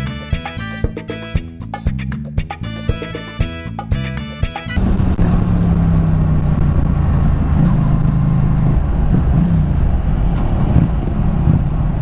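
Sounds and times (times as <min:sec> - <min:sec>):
motorcycle engine droning: 0:04.8 - 0:12.0
wind rushing over microphone: 0:04.8 - 0:12.0.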